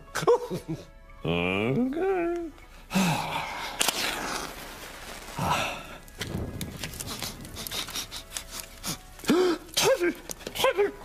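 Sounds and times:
flame crackling: 2.3s - 11.0s
match striking a matchbox: 3.7s - 9.3s.

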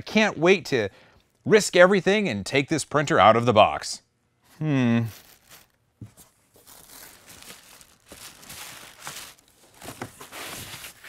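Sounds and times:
cardboard scraping and rustling: 5.2s - 11.0s.

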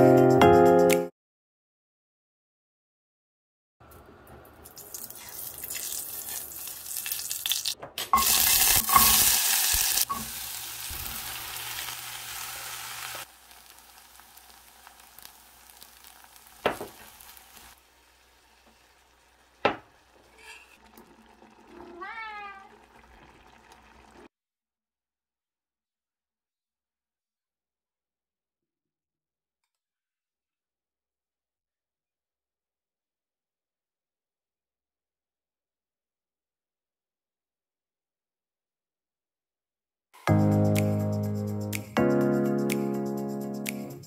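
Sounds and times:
food sizzling in a pot: 4.7s - 24.3s.

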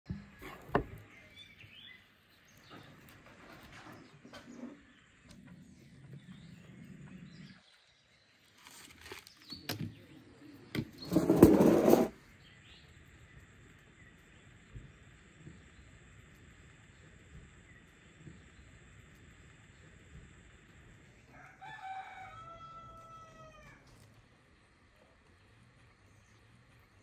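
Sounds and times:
birds chirping faintly: 0.1s - 27.0s
metal bucket scraping into embers: 11.0s - 12.2s.

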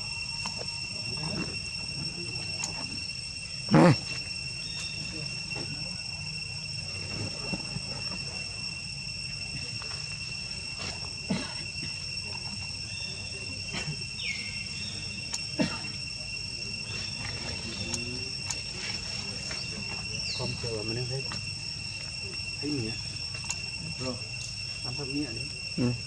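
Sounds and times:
high-pitched insect drone: 0.0s - 26.0s
sharp clicks: 23.4s - 23.6s.

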